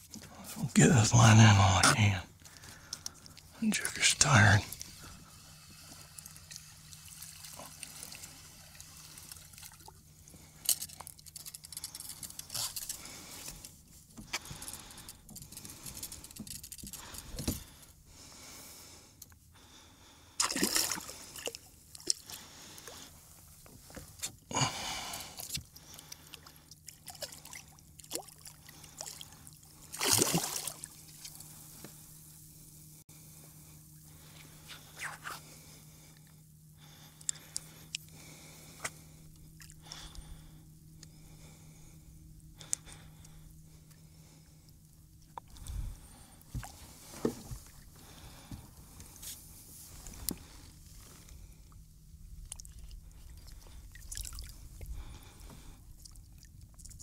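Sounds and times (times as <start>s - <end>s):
water splashing and trickling: 4.7s - 12.0s, 25.8s - 31.6s, 52.4s - 55.3s.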